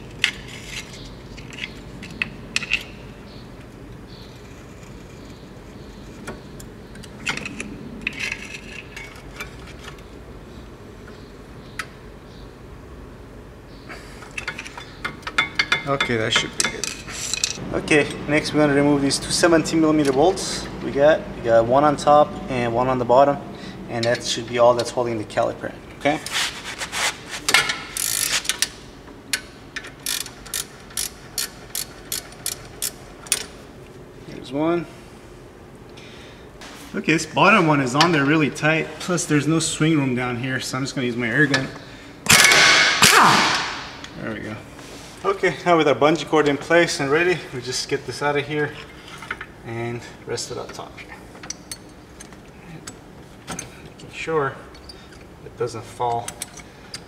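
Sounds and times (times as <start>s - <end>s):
ratchet wrench clicking: 27.9s - 28.7s, 29.8s - 33.5s.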